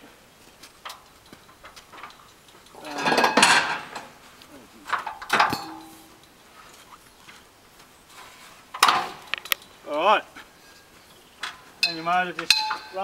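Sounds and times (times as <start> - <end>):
sharp metal clank: 5.1 - 6.3, 11.8 - 13.0.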